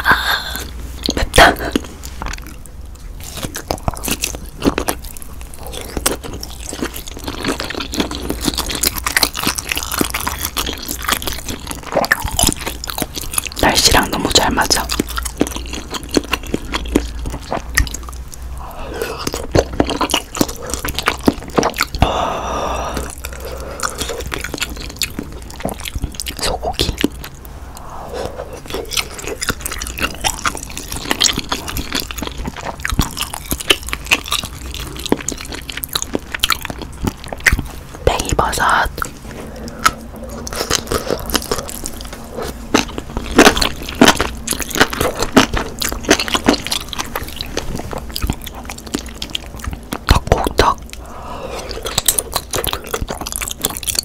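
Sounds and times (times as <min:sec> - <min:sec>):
wet chewing: 0:00.4 - 0:54.0
breathy rush: 0:22.0 - 0:24.2.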